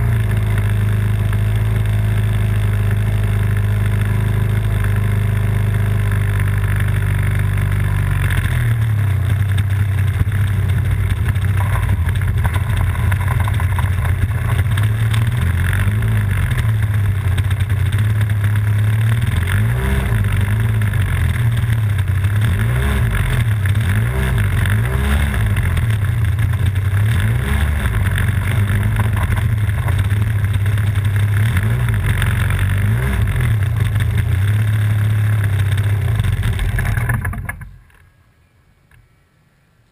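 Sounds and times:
model plane engine running: 0:00.1 - 0:19.5.

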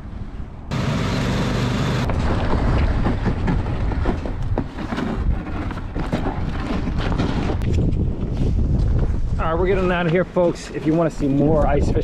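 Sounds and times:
motorized sled engine rumbling: 0:00.7 - 0:08.6
knocks and rattles: 0:02.1 - 0:08.0.

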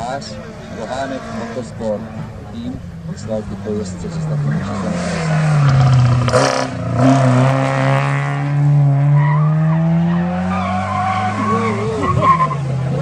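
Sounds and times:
rally car engines revving high: 0:00.0 - 0:13.0
tyres squealing: 0:09.2 - 0:13.0.

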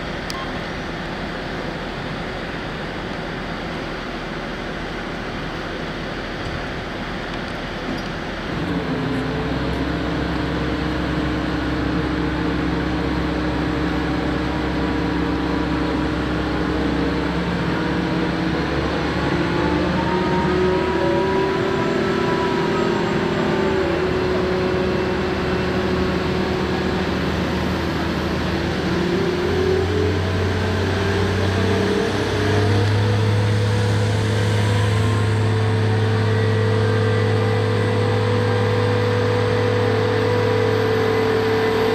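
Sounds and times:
heavy crane engine running: 0:00.0 - 0:41.9
high tone rising and falling: 0:18.5 - 0:27.6, 0:28.6 - 0:41.9.

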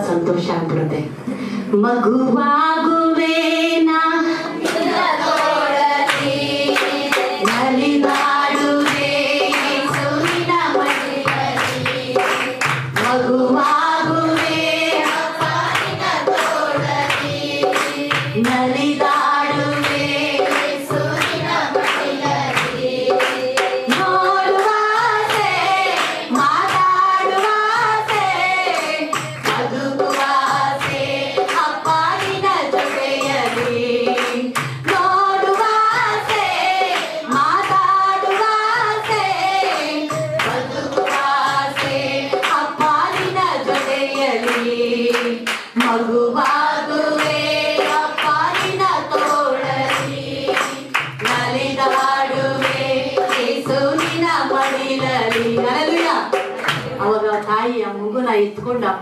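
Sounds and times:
sharp percussive hits: 0:04.4 - 0:57.0
musical accompaniment with beat: 0:04.6 - 0:57.0.

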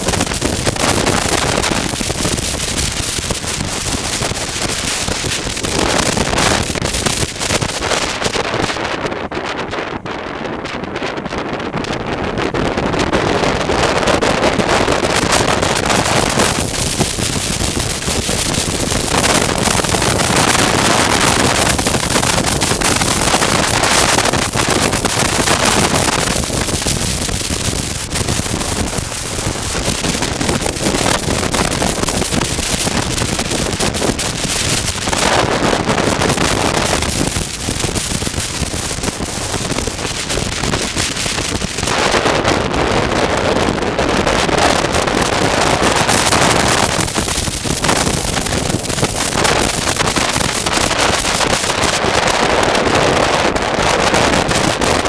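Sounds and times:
wind rushing on microphone: 0:00.0 - 0:55.0
motorcycle engine running: 0:12.8 - 0:42.4.

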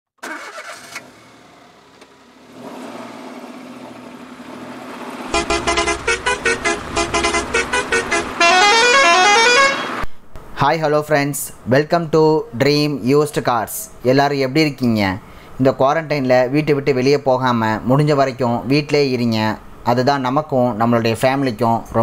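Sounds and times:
rising run of tones: 0:05.1 - 0:10.0
rapid car horn toots: 0:05.3 - 0:10.0.

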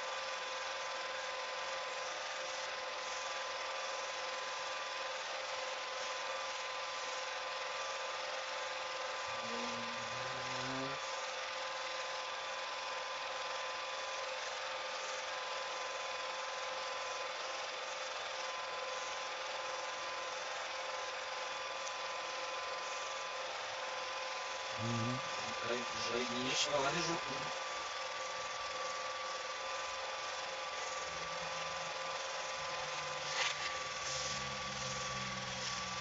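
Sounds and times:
film projector whirring: 0:00.0 - 0:36.0.

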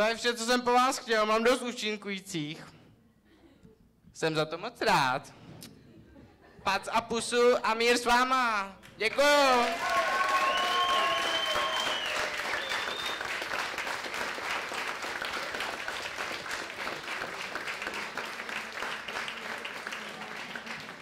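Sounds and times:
audience applauding: 0:08.8 - 0:21.0.

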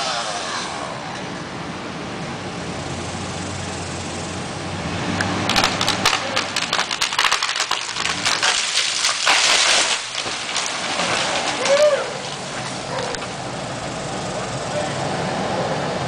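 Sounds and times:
engine hum: 0:00.0 - 0:16.0
branches crashing to ground: 0:05.4 - 0:12.8
wood cracking and snapping: 0:05.4 - 0:13.2.

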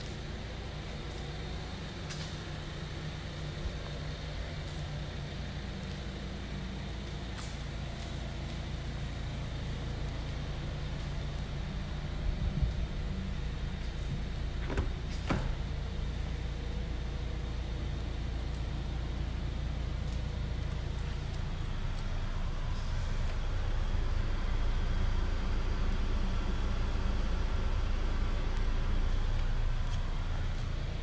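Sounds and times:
steady low hum: 0:00.0 - 0:31.0
car door unlatching clicks: 0:14.6 - 0:15.7.

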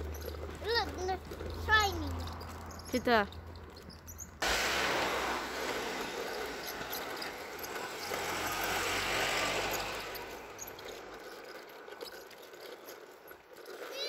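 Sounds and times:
vehicle driving past: 0:04.4 - 0:12.2.

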